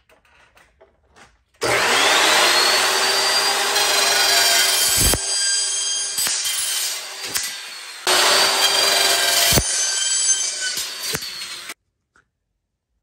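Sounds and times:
chop saw motor whine: 1.6s - 11.8s
saw blade cutting steel: 1.6s - 11.8s.

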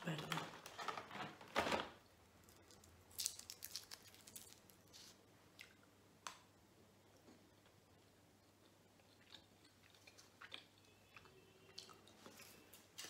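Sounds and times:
foil wrapper crinkling: 2.6s - 5.2s.

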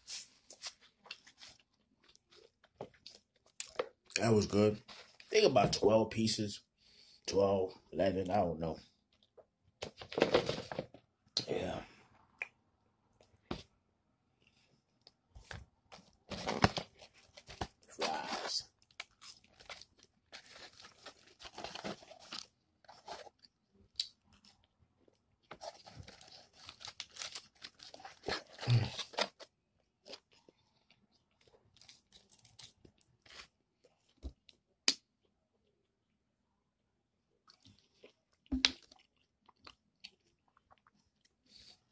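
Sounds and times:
paper and cardboard rustling: 9.8s - 10.9s, 15.5s - 18.6s, 19.3s - 23.4s.

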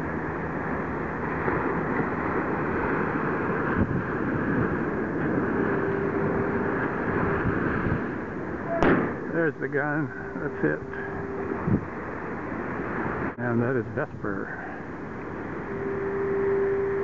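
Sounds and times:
strong wind on microphone: 0.0s - 13.4s
faint steady tone: 0.0s - 17.0s.

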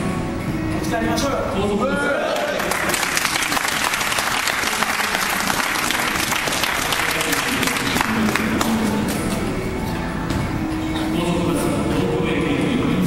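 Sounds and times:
crowd applauding: 2.2s - 9.3s.

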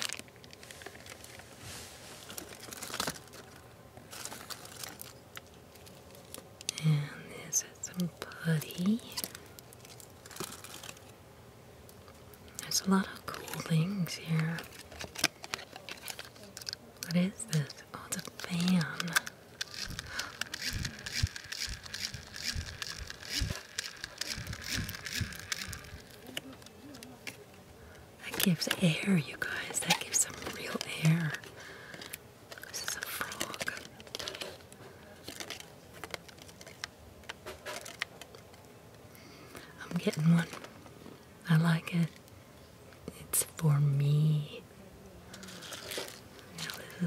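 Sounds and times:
plastic crinkle: 0.0s - 6.8s, 7.9s - 11.2s, 12.4s - 27.6s, 28.2s - 38.7s, 39.5s - 41.2s, 45.3s - 47.0s
small fan motor whining: 8.0s - 28.9s.

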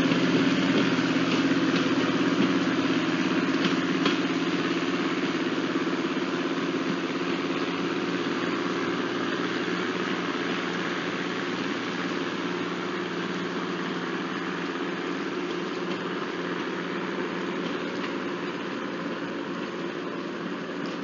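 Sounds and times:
trolley car engine humming: 0.0s - 21.0s.

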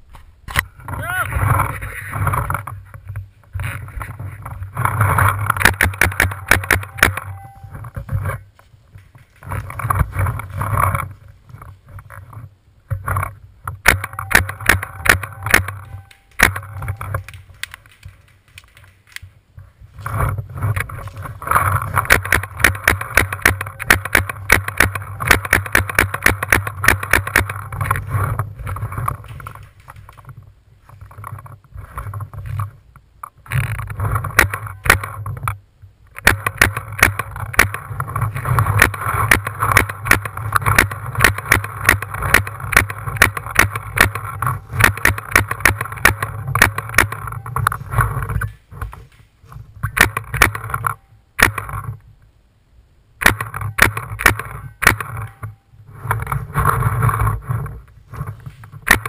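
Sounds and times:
paintball marker firing: 5.6s - 7.3s, 22.0s - 27.7s, 36.2s - 37.8s, 38.8s - 47.3s, 51.4s - 51.7s, 53.2s - 55.3s.

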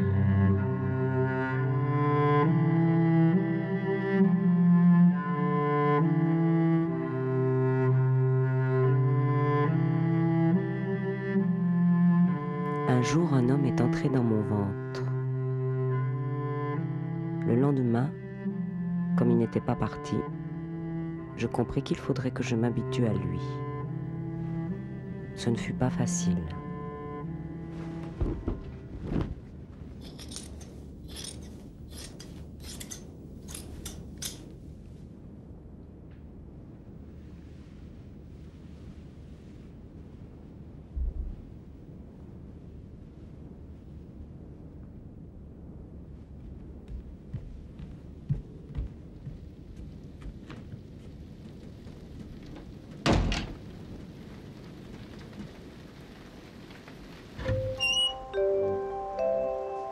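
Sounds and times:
low rumbling background noise: 0.0s - 59.9s
low steady hum: 0.0s - 59.9s
crisp scraping strokes: 27.5s - 34.0s
dull thud: 28.0s - 29.4s.

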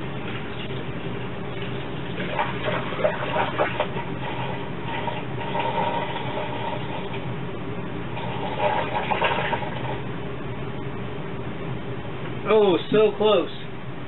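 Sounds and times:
water gurgling: 0.0s - 7.3s, 8.0s - 10.1s
water pouring through a funnel: 0.0s - 7.3s, 8.0s - 10.0s.

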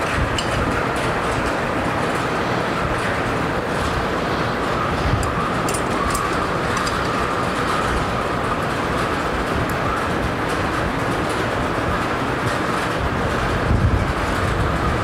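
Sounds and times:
rumbling mechanical noise: 0.0s - 15.0s
ratchet clicks: 5.2s - 7.2s.

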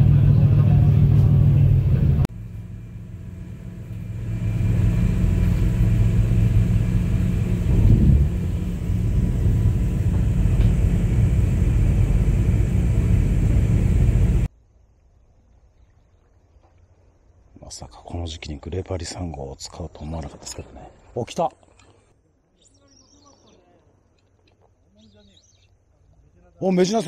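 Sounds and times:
boat engine rumbling: 0.0s - 14.5s.

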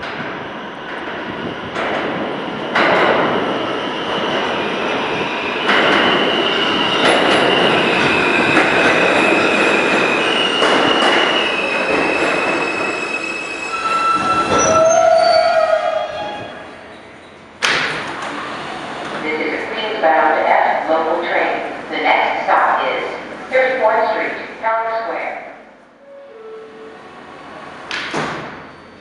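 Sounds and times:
train wheels rumbling and clicking: 0.0s - 13.0s
high wheel squeal: 9.3s - 17.4s
low brake squeal: 11.2s - 17.4s, 26.0s - 27.4s, 28.6s - 29.0s.

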